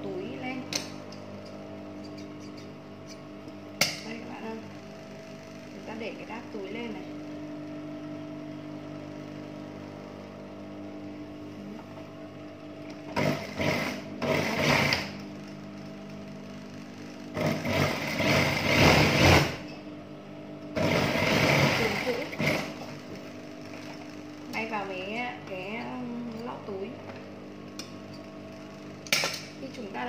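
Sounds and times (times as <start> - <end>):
steady low hum: 0.0 - 30.0
sewing machine stitching: 13.2 - 15.2, 17.4 - 19.6, 20.8 - 22.9.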